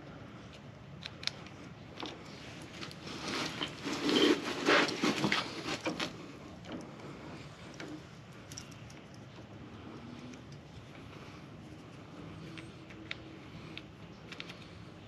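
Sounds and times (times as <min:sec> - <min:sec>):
plastic parts rubbing and scraping: 0:02.2 - 0:06.2.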